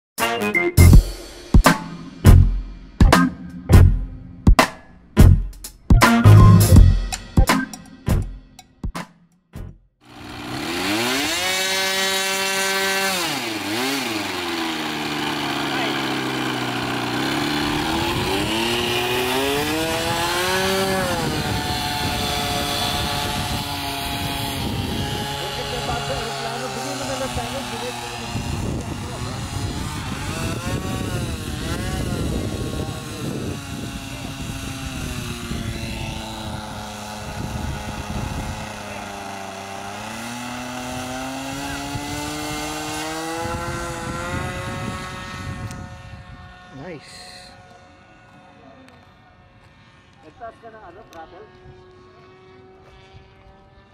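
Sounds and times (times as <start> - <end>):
model plane engine revving: 10.0 - 53.9
wind buffeting microphone: 17.6 - 39.0, 41.6 - 46.7.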